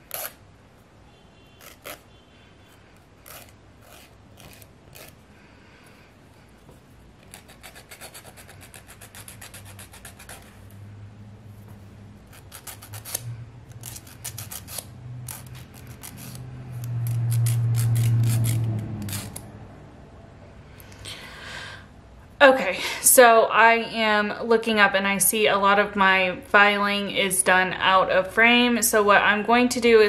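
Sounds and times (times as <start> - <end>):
nail file rasping: 0.0 - 0.4, 1.6 - 2.0, 3.2 - 5.2, 7.2 - 10.6, 12.2 - 19.4.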